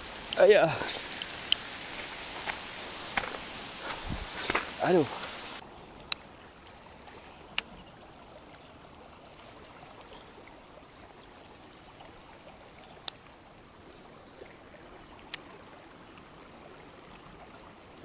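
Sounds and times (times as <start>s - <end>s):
heavy rain: 0.0s - 5.6s
river flowing: 0.0s - 18.0s.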